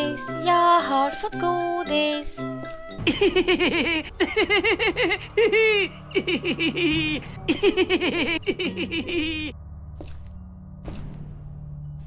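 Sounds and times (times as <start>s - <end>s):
cartoon boy giggling: 3.1s - 9.5s.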